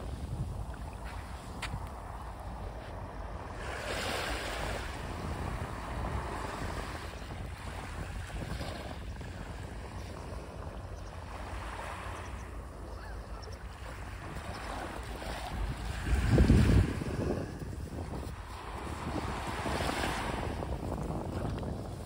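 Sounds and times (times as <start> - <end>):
small waves washing on shore: 0.0 - 22.0
wind rumbling on microphone: 0.0 - 22.0.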